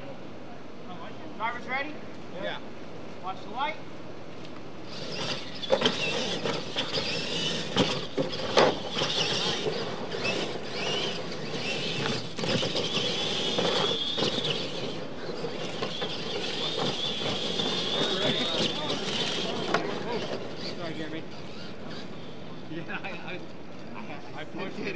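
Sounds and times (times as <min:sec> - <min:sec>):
electric motor whine: 0:04.8 - 0:22.7.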